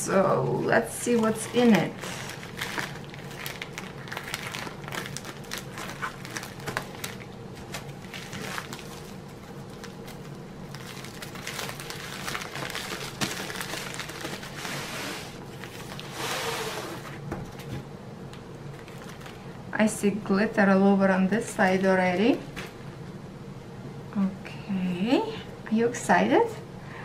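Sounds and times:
plastic bag crinkling and rustling: 0:01.0 - 0:17.7, 0:18.7 - 0:19.6.

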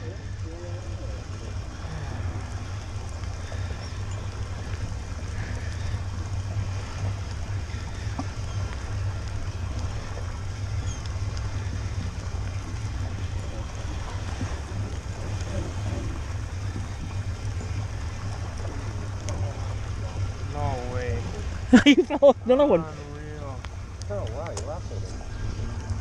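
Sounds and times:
boat engine rumble: 0:00.0 - 0:26.0
water washing along hull: 0:00.0 - 0:26.0.

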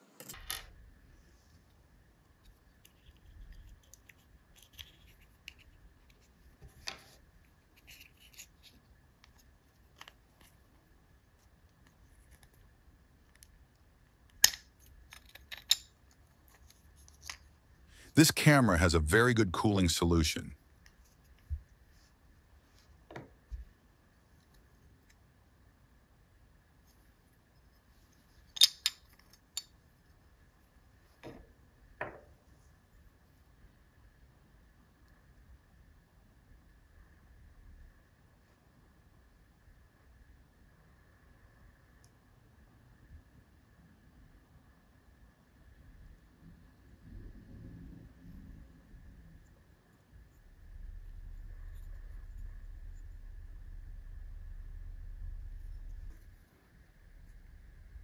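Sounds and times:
sharp clicks of metal parts: 0:14.3 - 0:17.5, 0:28.5 - 0:29.7.

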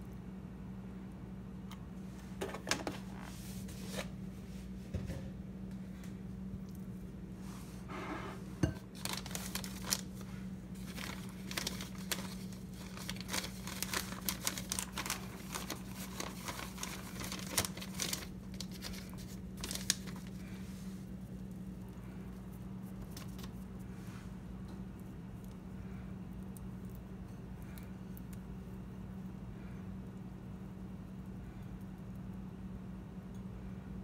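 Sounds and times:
steady low hum: 0:00.0 - 0:34.0
plastic bag crinkling: 0:08.9 - 0:21.8, 0:22.8 - 0:23.7.

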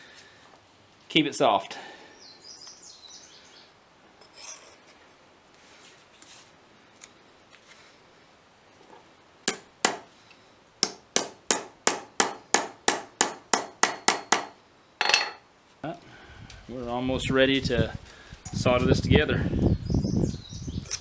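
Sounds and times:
faint scraping of metal: 0:04.2 - 0:05.0
hammer tapping metal on anvil: 0:09.5 - 0:10.0, 0:10.8 - 0:15.4.

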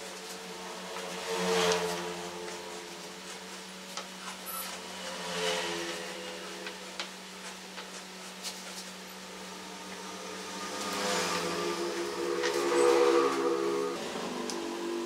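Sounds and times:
low hum: 0:09.0 - 0:15.0.

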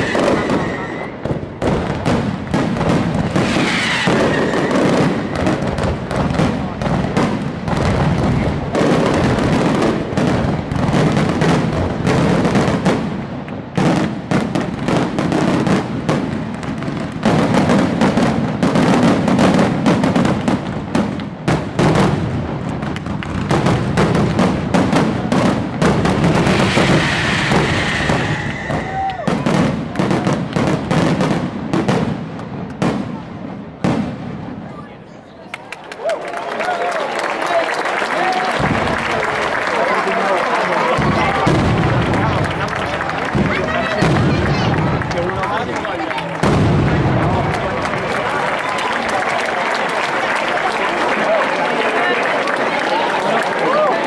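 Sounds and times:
high whistling firework: 0:00.0 - 0:13.2, 0:23.3 - 0:32.1
fireworks bursting and crackling: 0:00.0 - 0:35.8, 0:37.8 - 0:54.0.

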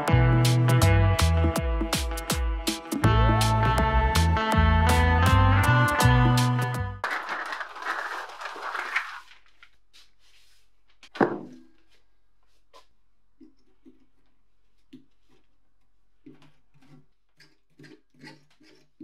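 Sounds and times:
guitar music: 0:00.0 - 0:07.0
paper rustle: 0:07.0 - 0:11.2.

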